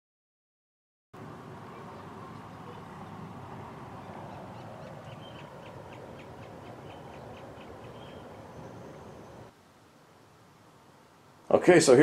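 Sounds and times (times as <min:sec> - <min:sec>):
fan blowing air: 0:01.2 - 0:09.5.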